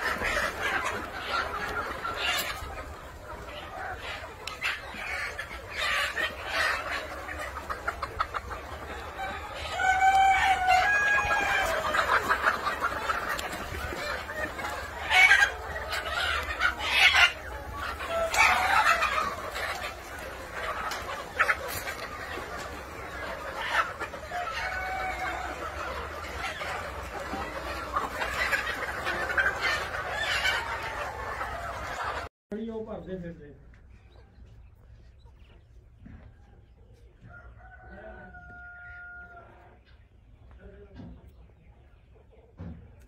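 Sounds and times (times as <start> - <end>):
chickens clucking: 0.0 - 43.0.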